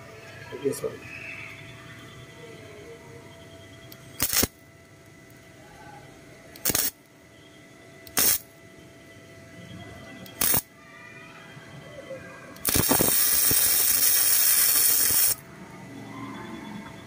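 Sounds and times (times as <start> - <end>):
welding arc bursts: 4.2 - 4.6, 6.6 - 7.0, 8.0 - 8.5, 10.3 - 10.7, 12.6 - 15.4.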